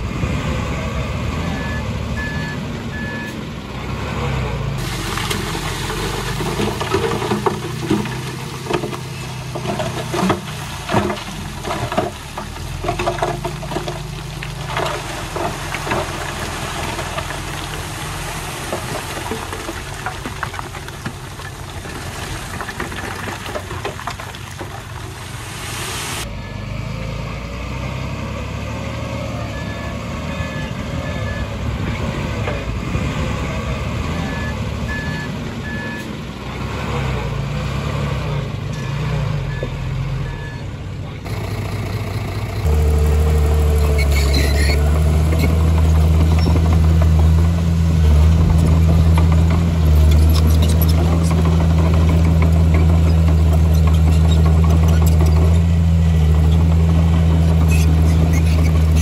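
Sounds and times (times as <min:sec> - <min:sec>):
heavy diesel machinery running: 0:39.6 - 0:59.0
nearby diesel engine running: 0:39.6 - 0:59.0.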